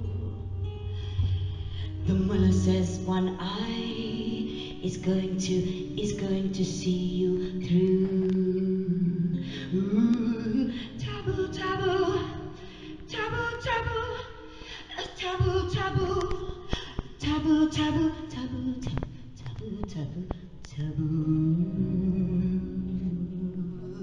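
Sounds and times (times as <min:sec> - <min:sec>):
steady low tone: 0:00.0 - 0:14.6, 0:19.6 - 0:24.0
woman singing: 0:00.0 - 0:24.0.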